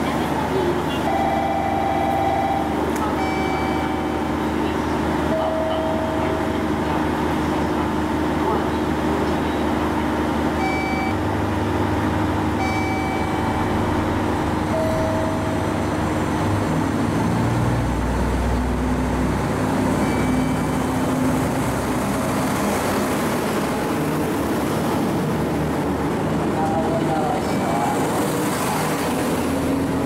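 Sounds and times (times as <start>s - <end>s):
diesel railcar engine rumble: 0.0s - 30.0s
short high beeps: 1.1s - 4.3s, 10.6s - 11.2s, 12.6s - 13.8s, 14.7s - 15.8s, 20.0s - 20.9s.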